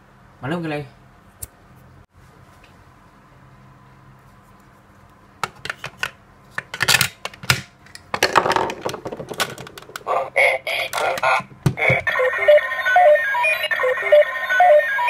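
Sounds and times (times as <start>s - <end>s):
toy electronic sound: 10.1s - 15.0s.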